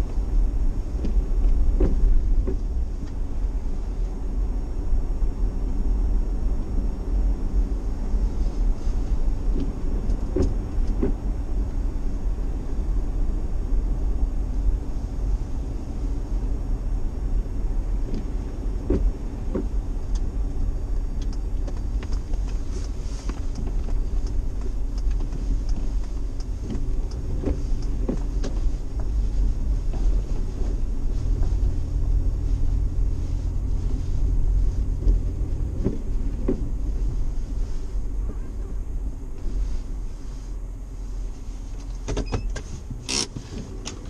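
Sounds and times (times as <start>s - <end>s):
vehicle engine and tyres rumbling: 0.0s - 44.0s
light knocks and creaks: 1.0s - 3.2s, 21.2s - 32.4s, 34.7s - 37.6s.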